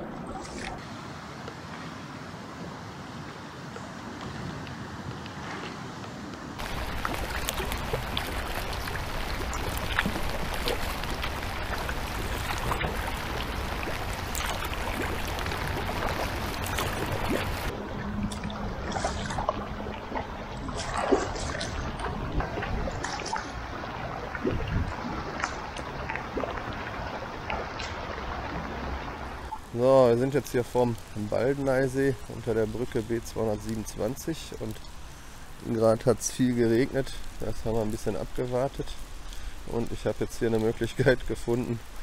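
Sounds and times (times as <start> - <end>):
kayak paddle blades dipping: 0.0 - 0.8, 6.4 - 29.8
water splashing and dripping: 6.6 - 42.0.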